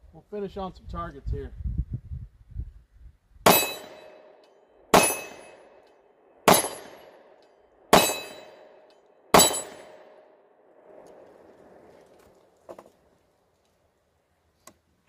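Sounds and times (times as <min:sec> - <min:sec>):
pistol shots: 0:03.5 - 0:05.8, 0:06.4 - 0:10.3.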